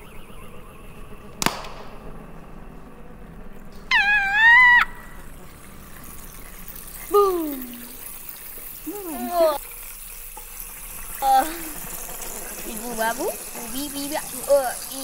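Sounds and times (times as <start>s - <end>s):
high-pitched wavering squeal: 0.0s - 8.1s
high-pitched call sliding down: 3.9s - 5.2s.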